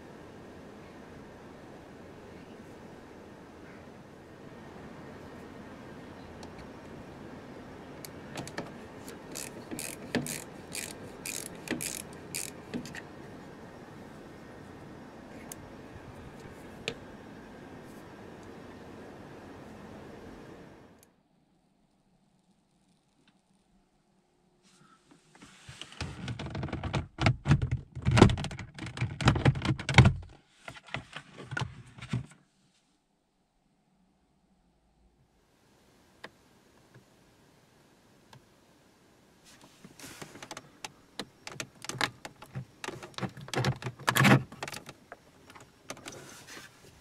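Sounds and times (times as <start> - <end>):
plastic clicks and creaks: 8.0 - 13.1, 25.9 - 31.7, 40.2 - 46.2
socket ratchet clicking: 8.4 - 13.0.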